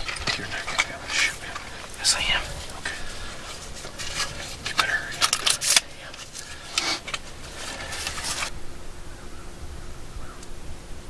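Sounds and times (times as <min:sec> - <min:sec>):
rustling and clicking handling noises: 0:00.0 - 0:08.5.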